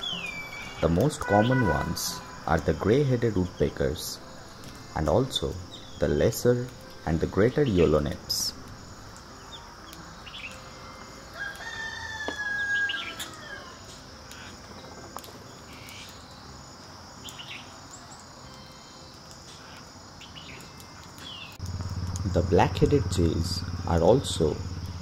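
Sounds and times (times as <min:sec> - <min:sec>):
long drawn-out bird call: 0:00.0 - 0:02.8, 0:09.4 - 0:14.6
high insect drone: 0:00.0 - 0:25.0.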